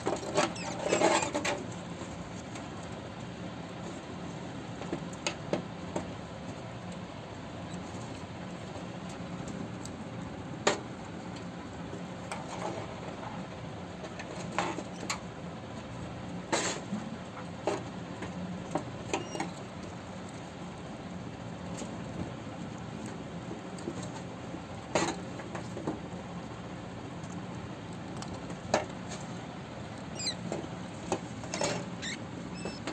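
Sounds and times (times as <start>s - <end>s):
high squeaks: 0.2s - 1.4s, 30.0s - 30.5s, 31.5s - 32.9s.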